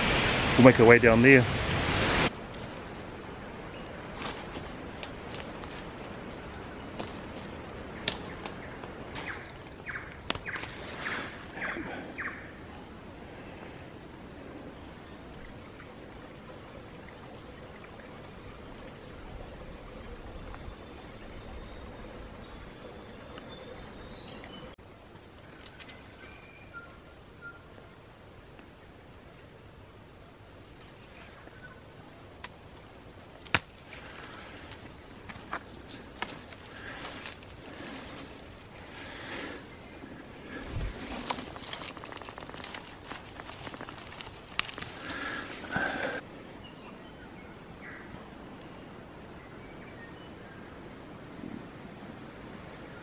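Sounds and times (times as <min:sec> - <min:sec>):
steady rushing noise: 0:00.0 - 0:11.5
fern fronds rustling: 0:00.0 - 0:16.4, 0:24.8 - 0:46.2
fern shoots snapping: 0:06.9 - 0:10.8, 0:33.4 - 0:34.2.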